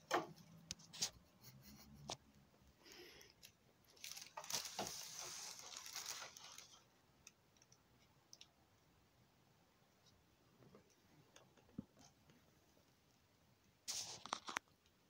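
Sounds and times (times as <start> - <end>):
plastic bag crinkling: 3.9 - 6.8.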